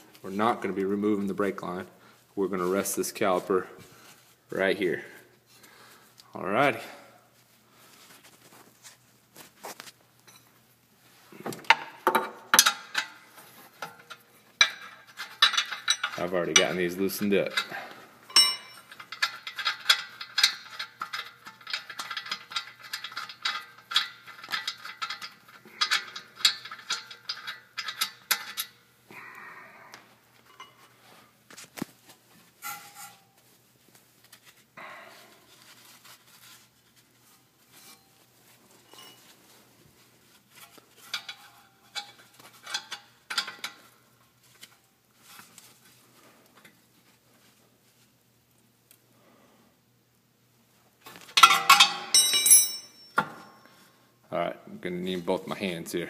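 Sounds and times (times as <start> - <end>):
metal brake hardware clinking: 18.3 - 28.8, 51.4 - 53.6.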